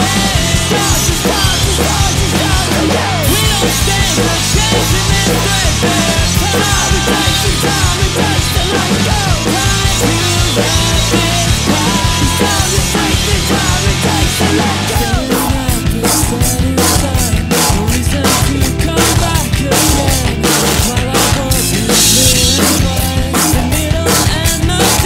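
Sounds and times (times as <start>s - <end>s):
drum kit played hard: 0.0s - 25.0s
rock song with distorted guitars: 0.0s - 25.0s.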